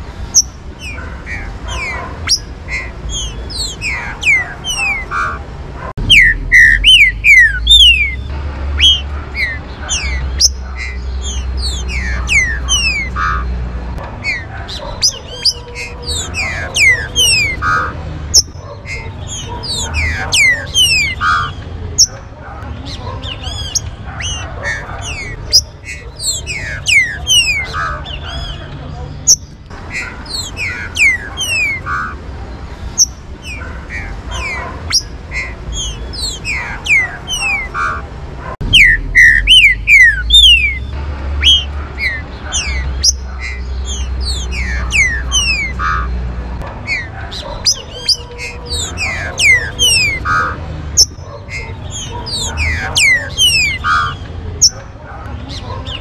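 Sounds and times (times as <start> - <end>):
birds singing and calling: 0.0 - 56.0.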